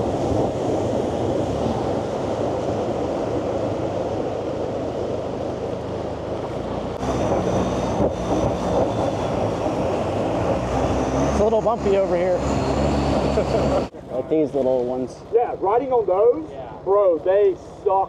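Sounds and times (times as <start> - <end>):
boat engine running: 0.0 - 14.4.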